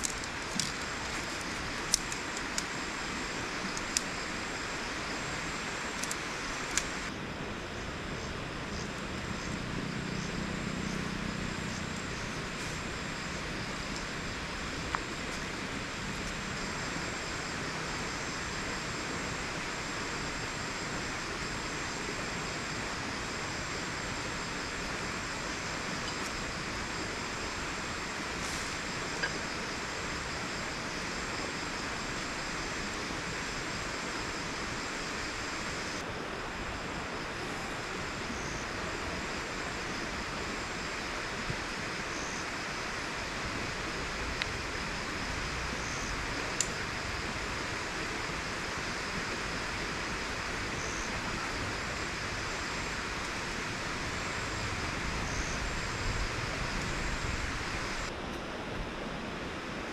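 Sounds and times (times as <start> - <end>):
river flowing: 0.0 - 59.9
tiny clicks: 5.9 - 7.1.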